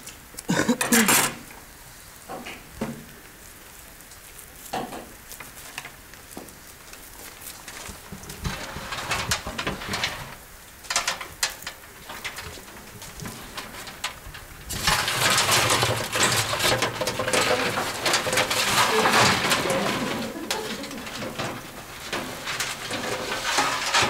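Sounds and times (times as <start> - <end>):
rods scraping against metal bin: 4.8 - 24.0.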